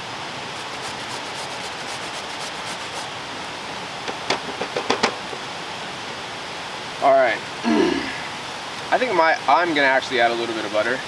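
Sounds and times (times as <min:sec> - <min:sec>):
grater rasping strokes: 0:00.5 - 0:03.1
sharp knocks and taps: 0:04.0 - 0:05.2.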